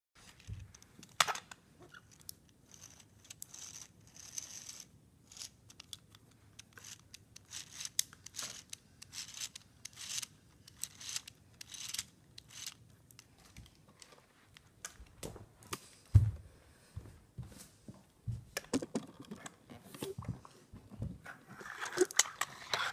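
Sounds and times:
plastic parts clicking and rattling: 0.2s - 15.2s, 21.5s - 22.9s.

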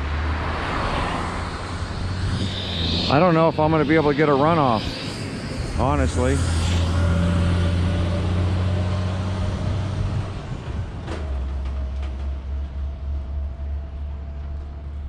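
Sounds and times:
heavy truck engine running: 5.9s - 15.0s.

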